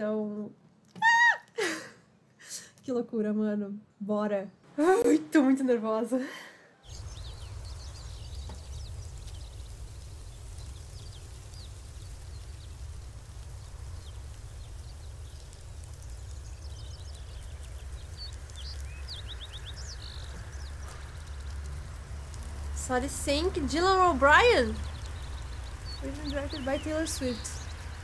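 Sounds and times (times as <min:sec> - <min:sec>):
birds chirping: 0:06.7 - 0:28.0
steady low rumble: 0:06.9 - 0:28.0.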